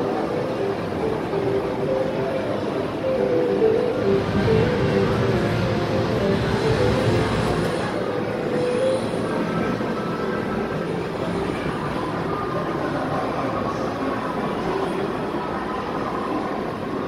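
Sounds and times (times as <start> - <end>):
arcade machines din: 0.3 - 10.0.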